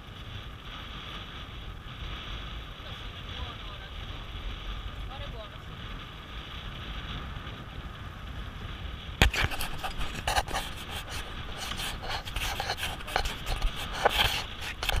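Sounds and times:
wind and water hiss: 0:00.0 - 0:15.0
sleeve rubbing camera housing: 0:09.2 - 0:15.0.

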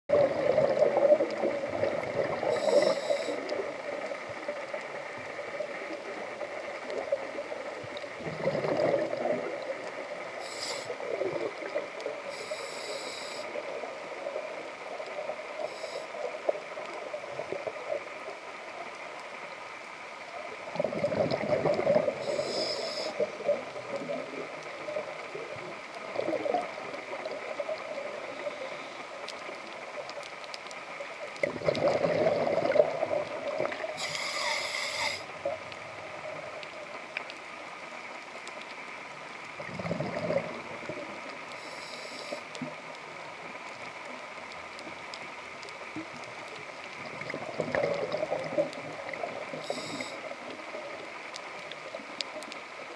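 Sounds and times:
exhaled bubbles gurgling: 0:00.1 - 0:18.1, 0:20.4 - 0:28.8, 0:31.3 - 0:36.9, 0:39.5 - 0:43.4, 0:45.6 - 0:52.2
regulator inhalation hisses: 0:02.5 - 0:03.5, 0:10.4 - 0:11.0, 0:12.3 - 0:13.6, 0:15.6 - 0:16.2, 0:22.2 - 0:23.2, 0:34.0 - 0:35.3, 0:41.6 - 0:42.4, 0:49.6 - 0:50.3.

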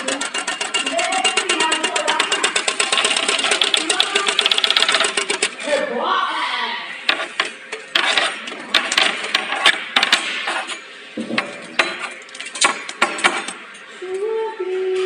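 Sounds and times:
metallic clicks and rattles: 0:00.0 - 0:05.6.

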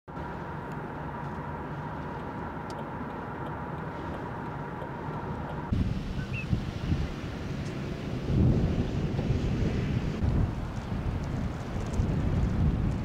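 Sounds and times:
faint steady whine: 0:00.1 - 0:08.5
car driving on highway: 0:00.1 - 0:13.0
gusty rumble: 0:00.1 - 0:13.0.

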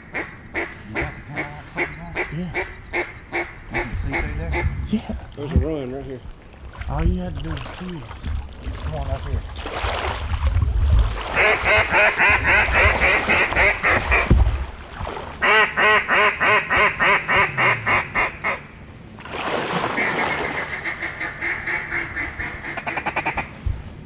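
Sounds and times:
duck quacking: 0:00.1 - 0:04.8, 0:11.4 - 0:14.3, 0:15.4 - 0:18.6, 0:20.0 - 0:23.5.

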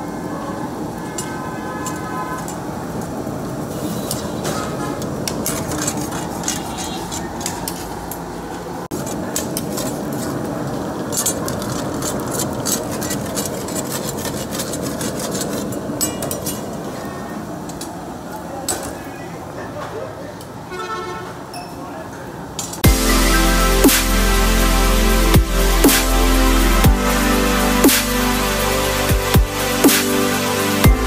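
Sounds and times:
steady rushing noise: 0:22.8 - 0:31.0.

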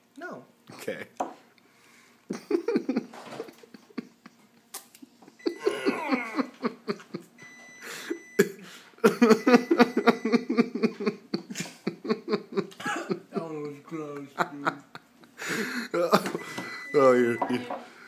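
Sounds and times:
rhythmic laughter: 0:02.3 - 0:07.4, 0:08.0 - 0:13.4.

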